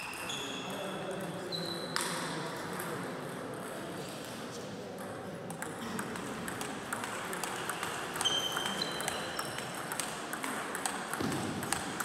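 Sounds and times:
table tennis balls clicking: 5.1 - 12.0.

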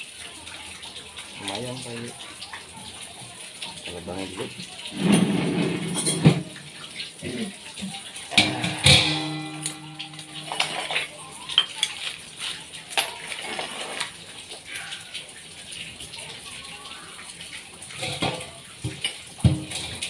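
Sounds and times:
metal bowl clinking and scraping: 4.9 - 6.9, 8.4 - 14.2, 17.9 - 20.0.

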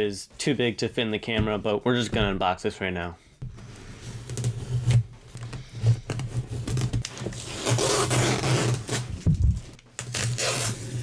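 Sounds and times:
packing tape scraped on cardboard: 3.7 - 9.2, 10.0 - 11.0.

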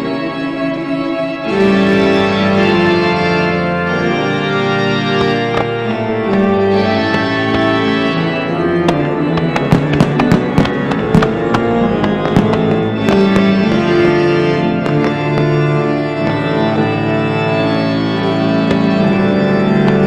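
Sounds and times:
organ-like chords: 0.0 - 20.0
sharp cracks: 4.8 - 20.0.

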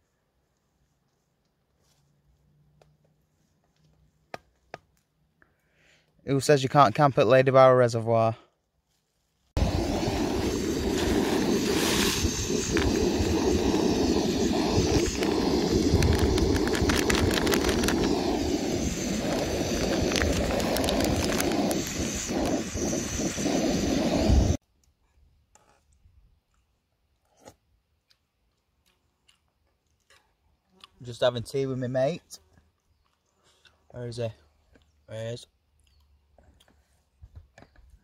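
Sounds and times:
camping stove burner roar: 9.6 - 24.6
water boiling bubbling: 9.6 - 24.6.

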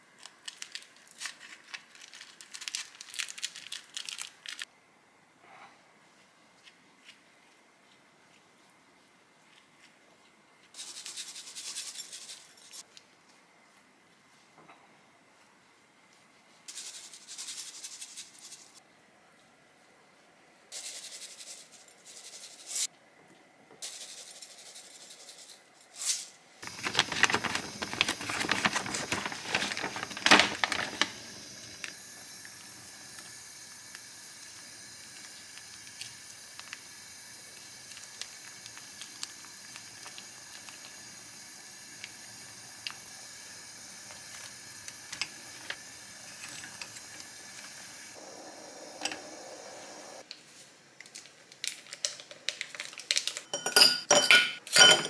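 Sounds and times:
plastic package crinkling: 0.1 - 4.7, 26.6 - 32.0, 51.0 - 53.6
gas burner hissing: 26.6 - 50.2.

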